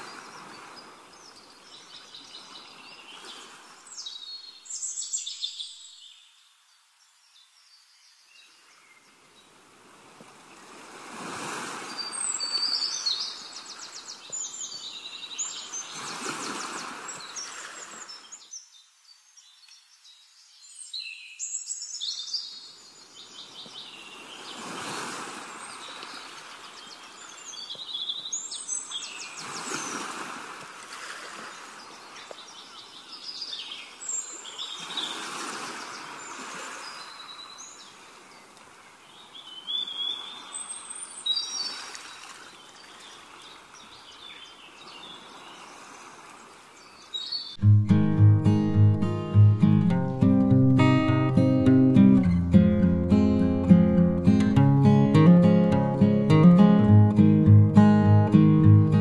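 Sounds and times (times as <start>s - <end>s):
birds chirping and trilling: 46.4s - 59.0s.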